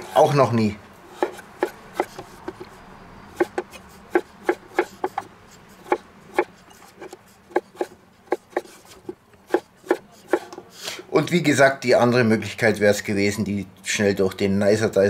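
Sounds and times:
knife chopping on wooden board: 1.1s - 2.8s, 3.4s - 10.7s.

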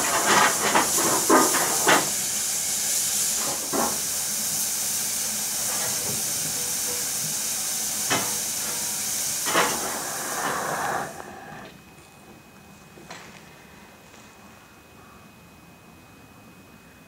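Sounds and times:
steam locomotive hissing: 0.0s - 11.8s.

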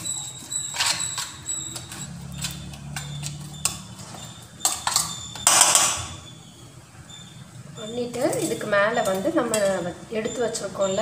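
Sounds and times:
spoon scraping metal bowl: 0.0s - 6.0s.

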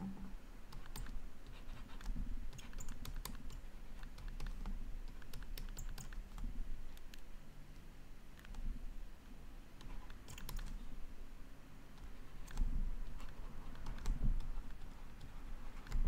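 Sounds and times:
stylus clicking on a tablet: 0.7s - 7.3s, 9.8s - 10.8s, 11.9s - 16.0s.

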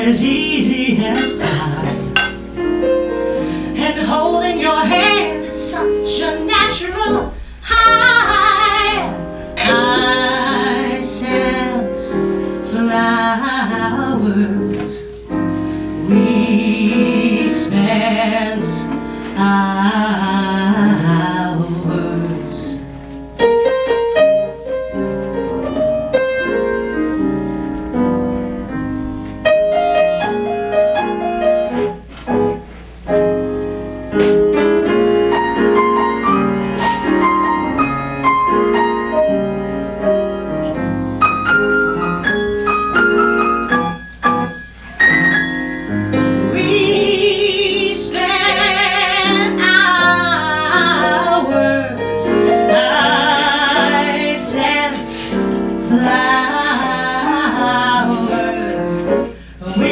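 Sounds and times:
woman singing a slow ballad: 0.0s - 2.2s, 3.6s - 23.0s, 46.4s - 59.9s
piano: 0.0s - 59.9s.

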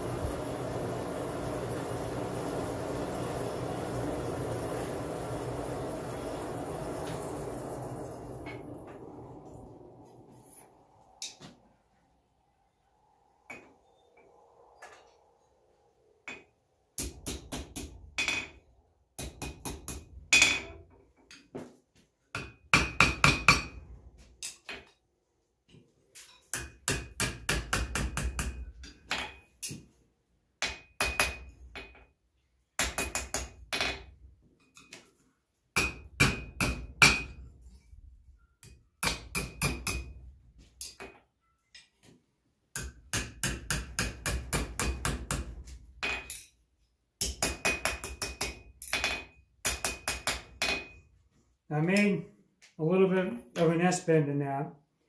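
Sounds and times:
hammer striking hot iron on anvil: 22.4s - 23.8s, 26.5s - 29.4s, 30.6s - 32.0s, 32.8s - 34.0s, 35.8s - 37.4s, 39.0s - 40.2s, 42.8s - 46.4s, 47.2s - 51.0s.

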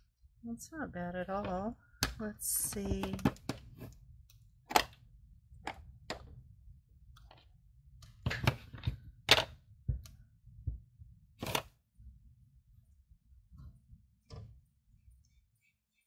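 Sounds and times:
craft supplies clicking and knocking: 1.4s - 6.4s, 7.2s - 10.2s, 11.4s - 11.8s.

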